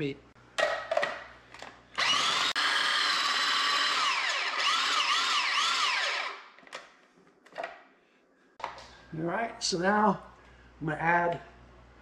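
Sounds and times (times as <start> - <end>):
food processor motor whine: 2.0 - 6.4.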